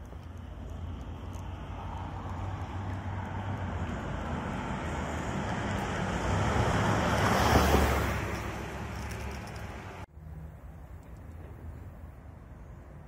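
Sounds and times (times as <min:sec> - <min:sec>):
low traffic rumble: 0:00.0 - 0:13.0
car driving past: 0:00.8 - 0:10.1.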